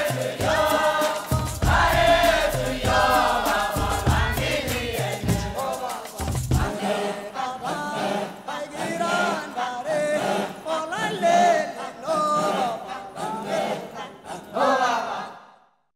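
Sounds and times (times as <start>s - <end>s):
low drum beat: 0.0s - 6.7s
voices singing chant-like melody: 0.0s - 15.6s.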